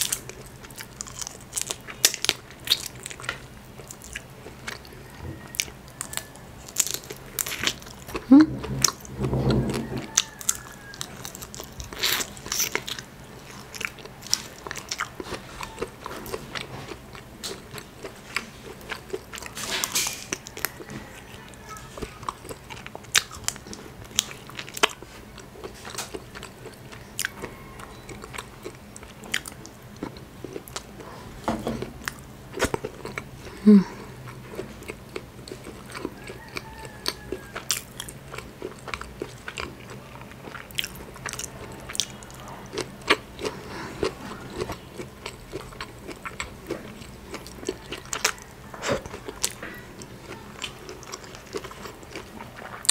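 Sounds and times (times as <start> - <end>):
wet biting and chewing: 0.0 - 31.1, 32.0 - 52.9.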